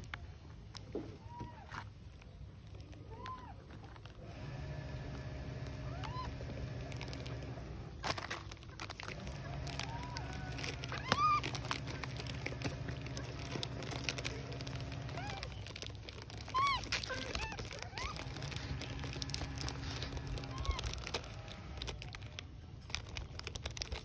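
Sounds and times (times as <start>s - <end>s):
steady low hum: 4.2s - 23.4s
baby monkeys calling: 5.6s - 7.2s, 9.3s - 21.6s.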